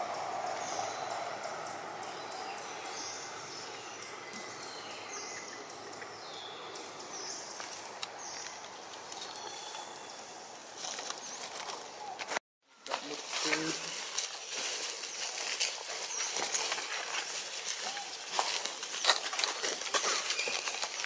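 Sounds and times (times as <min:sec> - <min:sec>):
animal walking on dry leaves: 0:06.7 - 0:21.0.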